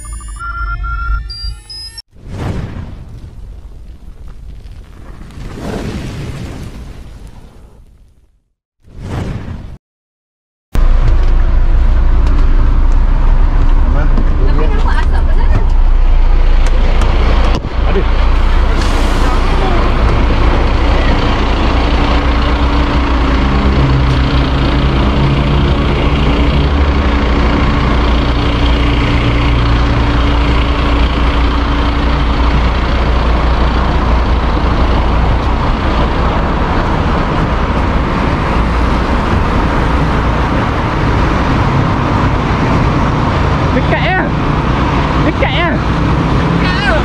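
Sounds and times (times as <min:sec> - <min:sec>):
engine hum: 0:10.8 - 0:47.0
fire engine low rumble: 0:10.8 - 0:47.0.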